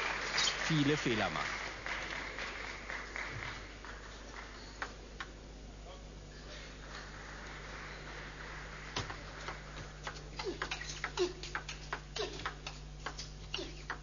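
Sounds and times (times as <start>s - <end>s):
low broadcast hum: 0.0s - 14.0s
table tennis ball clicking: 9.0s - 14.0s.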